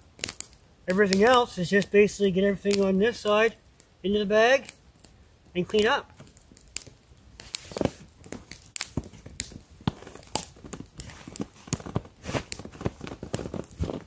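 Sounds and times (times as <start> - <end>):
fabric and nylon rustling: 7.4 - 14.0.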